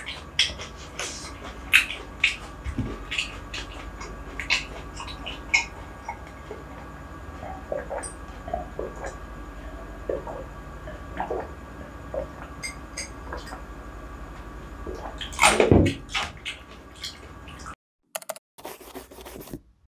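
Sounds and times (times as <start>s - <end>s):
swallowing: 0.0s - 12.6s.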